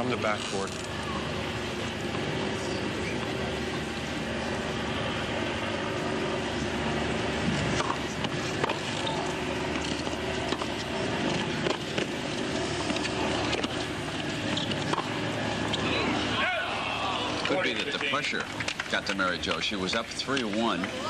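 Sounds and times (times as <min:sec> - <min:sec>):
racket striking tennis ball: 0:07.6 - 0:08.9, 0:09.7 - 0:12.2, 0:14.5 - 0:15.2
tennis ball bouncing: 0:07.7 - 0:08.9, 0:09.7 - 0:12.2, 0:12.8 - 0:13.8, 0:14.4 - 0:15.8.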